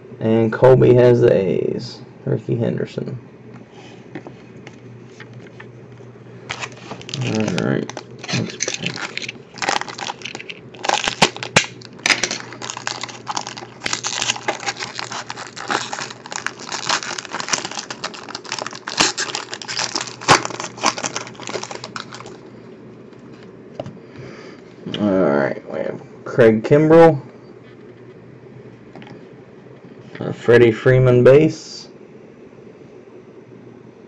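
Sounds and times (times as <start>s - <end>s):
wrapper crinkling and tearing: 6.5s - 22.4s.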